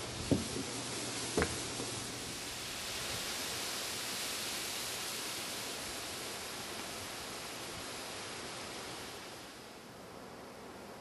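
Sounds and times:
wind rustling through reeds: 0:00.0 - 0:11.0
dull thumps: 0:00.2 - 0:01.9.

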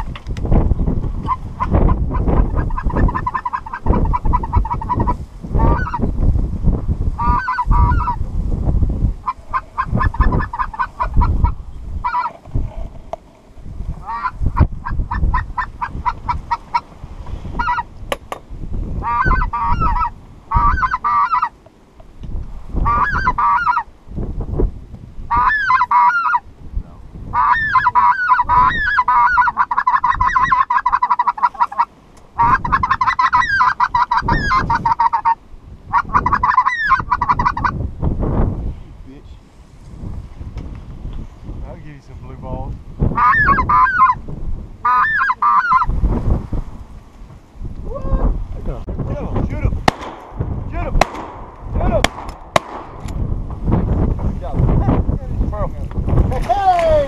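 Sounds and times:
wind rumbling on microphone: 0:00.0 - 0:57.0
geese honking: 0:01.2 - 0:06.1, 0:07.2 - 0:08.2, 0:09.2 - 0:12.4, 0:14.0 - 0:16.9, 0:17.5 - 0:17.9, 0:19.0 - 0:21.6, 0:22.8 - 0:23.9, 0:25.3 - 0:26.5, 0:27.3 - 0:37.8, 0:43.2 - 0:44.2, 0:44.8 - 0:46.0.

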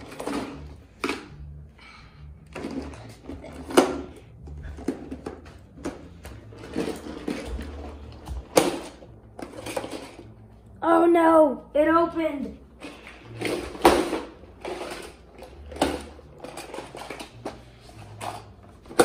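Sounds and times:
toy cars clattering in case: 0:04.8 - 0:10.4, 0:12.8 - 0:19.0.

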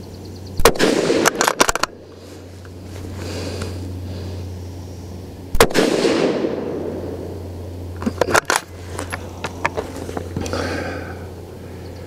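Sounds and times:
rifle shot with echo: 0:00.6 - 0:02.0, 0:05.5 - 0:07.2.

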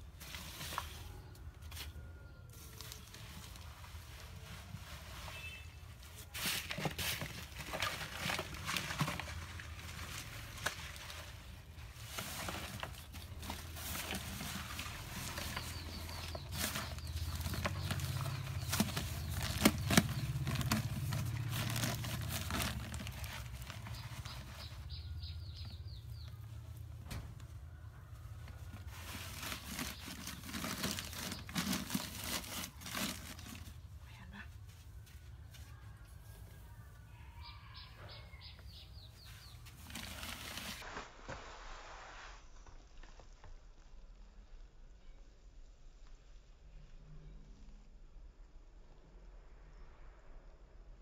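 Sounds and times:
plastic sheet rustling: 0:02.5 - 0:25.2, 0:28.5 - 0:33.9, 0:39.2 - 0:41.9
hands scraping soil: 0:02.6 - 0:26.3, 0:28.7 - 0:33.8, 0:39.2 - 0:42.8.

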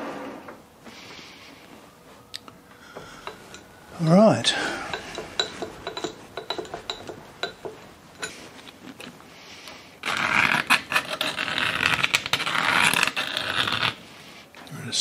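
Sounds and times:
metal swarf scraping: 0:03.0 - 0:09.1, 0:10.0 - 0:14.0
metal clicks and taps: 0:04.9 - 0:08.4.

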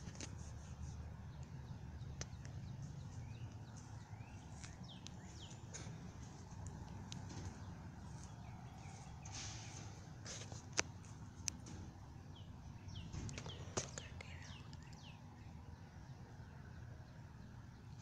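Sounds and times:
footsteps on pavement: 0:02.4 - 0:11.2.

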